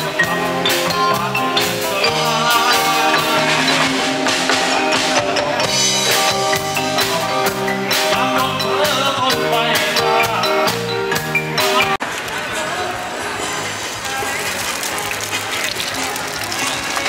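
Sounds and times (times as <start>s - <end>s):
steady drum beat: 0.0s - 12.0s
live band playing upbeat song: 0.0s - 17.0s.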